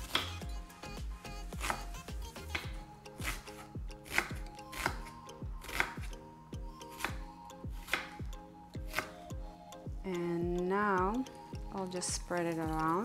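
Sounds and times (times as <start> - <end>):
knife chopping on wooden board: 0.0 - 0.4, 2.5 - 6.1, 7.8 - 8.2, 8.9 - 9.2
soft background music: 0.0 - 13.0.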